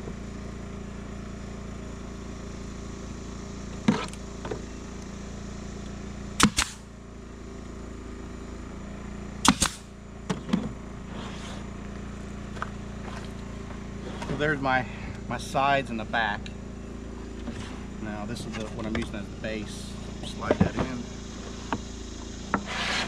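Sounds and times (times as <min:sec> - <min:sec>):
nail gun firing: 0:06.4 - 0:06.9, 0:09.4 - 0:09.9.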